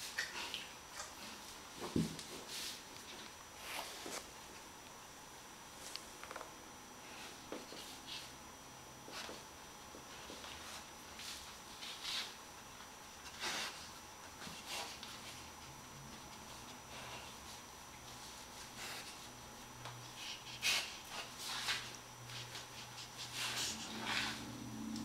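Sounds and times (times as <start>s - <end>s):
dog sniffing and breathing: 13.2s - 15.4s, 18.2s - 19.4s, 20.0s - 24.6s.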